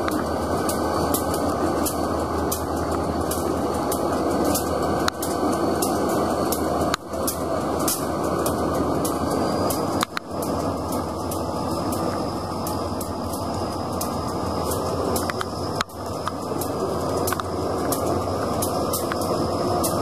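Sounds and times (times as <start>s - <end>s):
diesel locomotive engine rumbling: 0.0s - 20.0s
faint sharp ticks: 0.0s - 20.0s.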